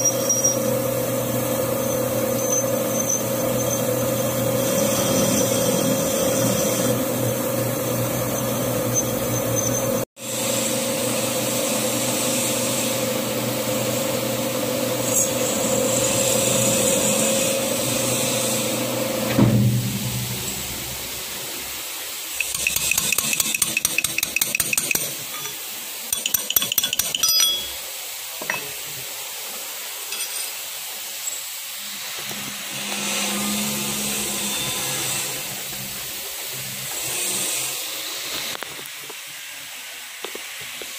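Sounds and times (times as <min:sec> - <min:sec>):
metal lathe humming: 0:22.4 - 0:25.6
metallic clinking and rattling: 0:22.4 - 0:27.8.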